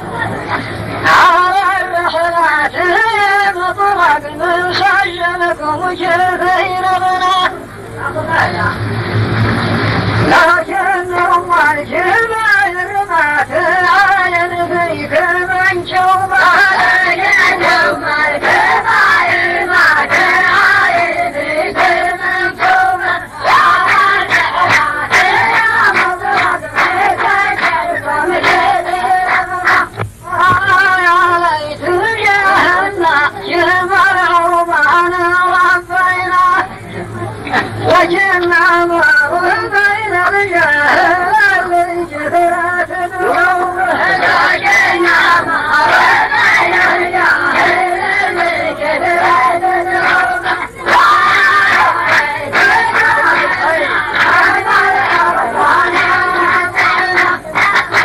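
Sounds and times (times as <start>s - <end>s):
men chanting in unison: 10.2s - 29.9s, 39.5s - 58.0s.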